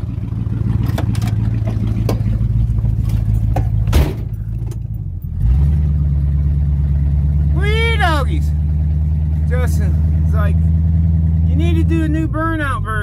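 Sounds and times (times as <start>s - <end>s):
car engine idling: 0.0s - 13.0s
car door shutting: 3.1s - 4.8s.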